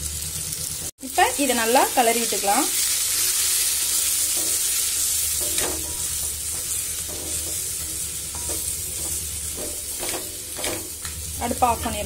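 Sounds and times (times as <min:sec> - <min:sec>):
food sizzling: 0:00.0 - 0:12.0
spatula scraping metal pan: 0:03.2 - 0:11.0.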